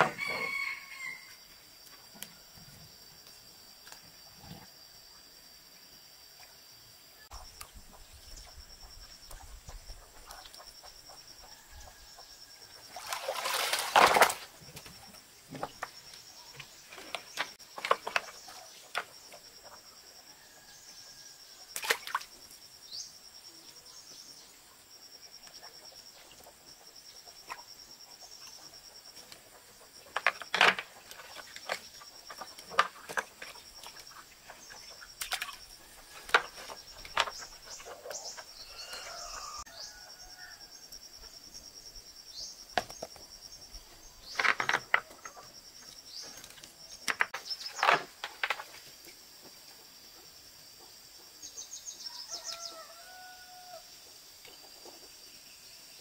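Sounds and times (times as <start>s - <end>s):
high insect drone: 0.0s - 56.0s
water splashing from net: 12.9s - 14.5s
fish slapping on bamboo: 13.0s - 14.5s, 21.8s - 22.2s, 35.2s - 35.6s.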